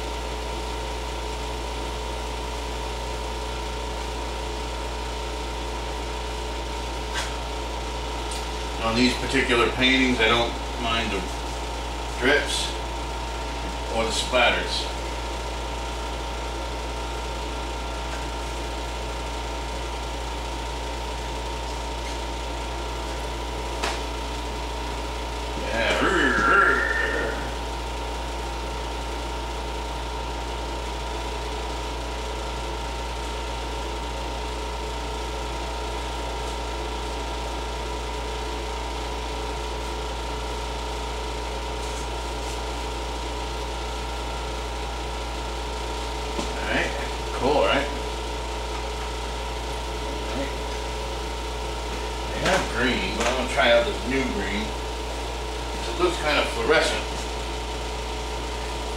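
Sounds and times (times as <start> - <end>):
air conditioner drone: 0.0 - 58.9
thin constant whine: 21.6 - 28.5
thin high steady tone: 25.6 - 27.8.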